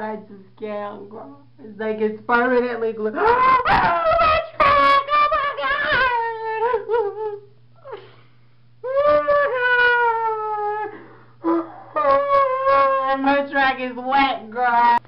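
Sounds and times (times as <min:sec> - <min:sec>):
person mock sobbing: 0:03.2 - 0:08.2, 0:08.8 - 0:13.1
person gasping: 0:10.9 - 0:11.9.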